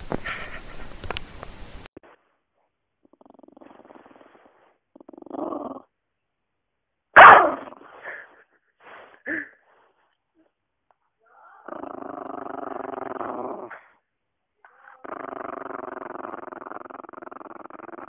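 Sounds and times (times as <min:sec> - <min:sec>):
dog growling: 0:03.0 - 0:05.9, 0:11.6 - 0:14.0, 0:14.7 - 0:18.0
dog barking: 0:07.2 - 0:07.7.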